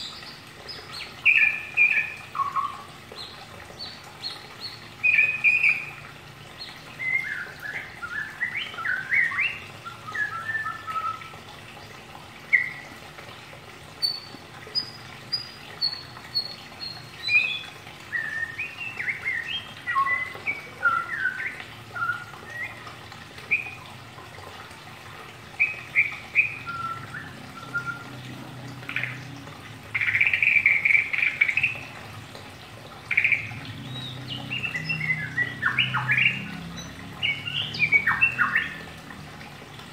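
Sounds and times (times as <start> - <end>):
songbird chirping and whistling: 7.0 - 11.3, 17.2 - 22.8, 25.6 - 28.1, 33.1 - 36.5, 37.2 - 38.9.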